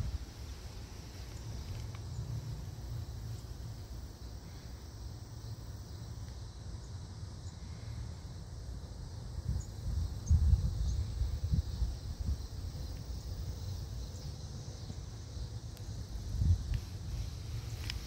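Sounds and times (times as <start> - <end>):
wind rumble on microphone: 0.0 - 2.6, 9.1 - 14.2, 14.8 - 18.0
faint high hiss: 0.0 - 18.0.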